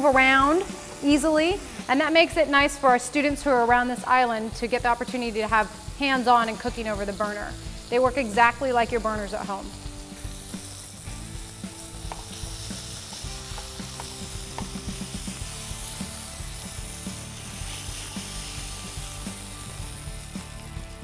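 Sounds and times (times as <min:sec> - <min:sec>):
burger sizzling in skillet: 0:00.0 - 0:21.0
utensil clicking against pan: 0:12.0 - 0:15.4.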